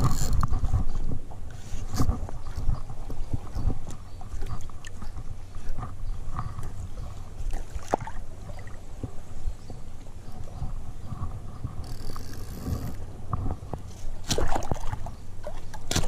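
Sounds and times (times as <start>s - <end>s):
seawater lapping and sloshing: 1.6s - 16.0s
small splashes and knocks: 7.4s - 9.2s, 13.7s - 16.0s.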